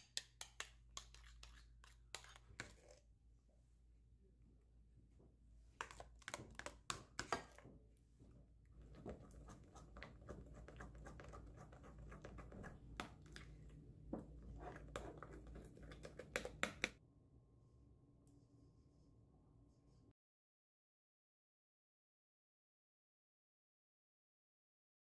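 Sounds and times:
spoon clicking and scraping bowl: 0:00.0 - 0:03.0, 0:05.8 - 0:07.6, 0:08.8 - 0:17.0.

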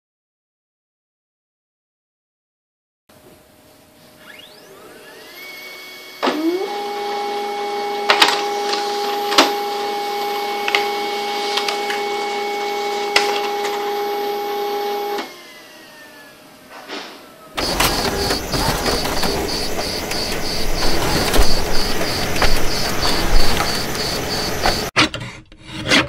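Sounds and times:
laser printer printing: 0:17.6 - 0:24.9
paper feed clicks: 0:17.6 - 0:24.9.

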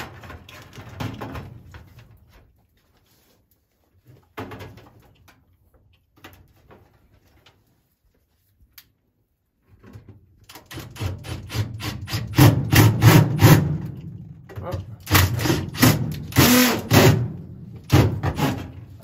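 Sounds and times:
tool and sheet metal clatter: 0:15.0 - 0:19.0.

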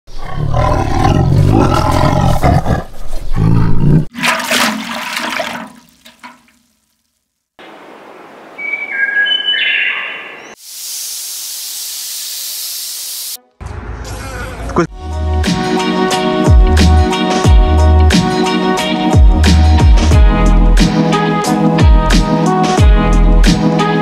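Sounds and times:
big cat roaring and growling: 0:00.1 - 0:04.1
steady rushing hiss: 0:10.6 - 0:13.4.

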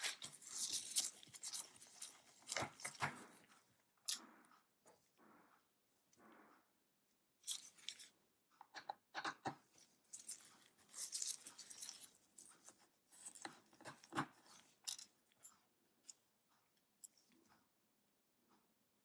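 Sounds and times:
gloved hands rubbing plastic: 0:00.0 - 0:03.5, 0:09.7 - 0:14.8
screwdriver clicking and scraping: 0:00.0 - 0:03.5, 0:07.4 - 0:16.2.

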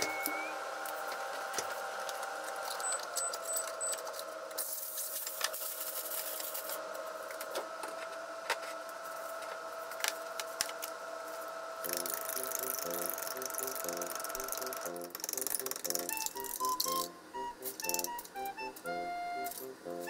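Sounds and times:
kitchen hum: 0:00.0 - 0:20.0
aluminium foil crinkling: 0:04.6 - 0:06.8.

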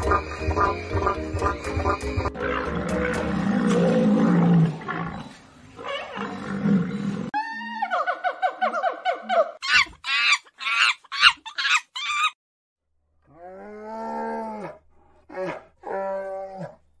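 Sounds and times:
long steady monkey calls: 0:07.4 - 0:12.4
monkeys shrieking: 0:07.4 - 0:12.4.

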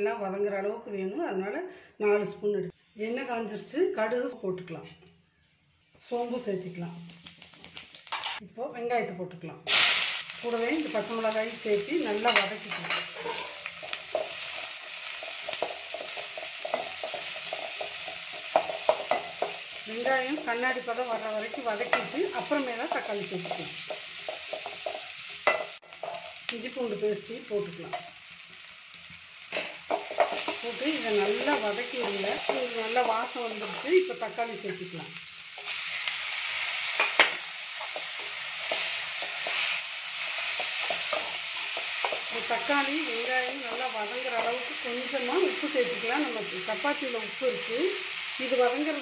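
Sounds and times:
onions sizzling in hot oil: 0:05.9 - 0:08.4, 0:09.7 - 0:49.0
metal spatula scraping a pan: 0:12.2 - 0:19.8
ladle scraping pan: 0:12.3 - 0:14.0.

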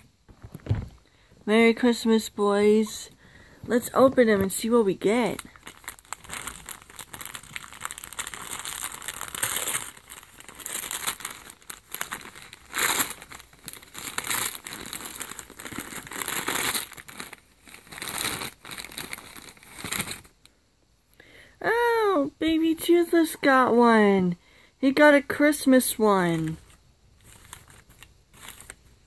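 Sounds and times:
wrapping paper tearing and rustling: 0:04.7 - 0:20.4, 0:26.3 - 0:29.0.

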